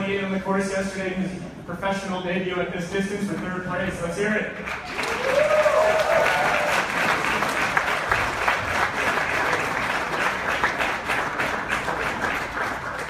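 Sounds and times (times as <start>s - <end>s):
audience applauding: 4.7s - 13.0s.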